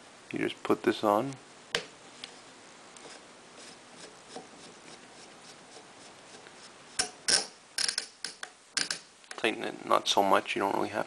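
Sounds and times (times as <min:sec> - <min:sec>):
faint rubbing of metal parts: 0:02.2 - 0:09.0.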